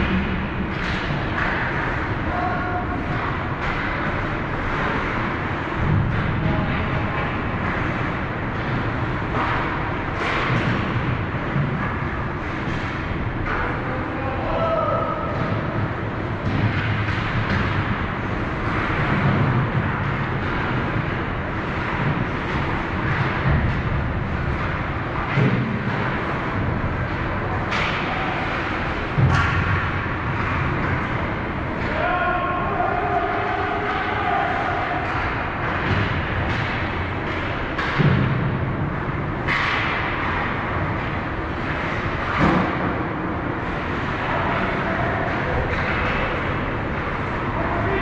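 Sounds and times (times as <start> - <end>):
ice rink crowd noise: 0.0 - 48.0
sharp knocks and thuds: 15.2 - 32.1, 33.6 - 47.5.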